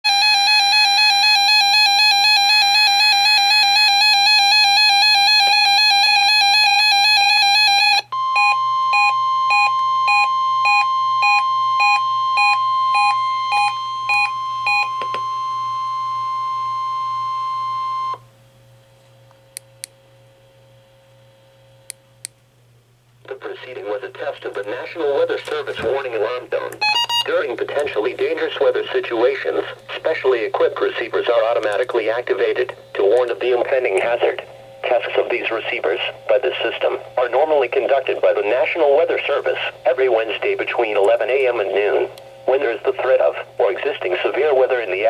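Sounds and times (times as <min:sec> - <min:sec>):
steady warning alarm tone: 0:00.0 - 0:18.3, 0:26.2 - 0:31.3
pulsing alarm beeps: 0:00.1 - 0:18.2, 0:26.8 - 0:27.4
faint hum: 0:00.1 - 0:45.0.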